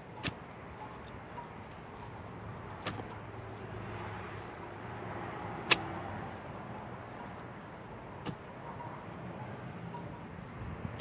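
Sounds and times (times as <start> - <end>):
steady background noise: 0.0 - 11.0
garden pick striking dry dirt: 0.2 - 3.2, 5.6 - 6.1, 8.2 - 8.5.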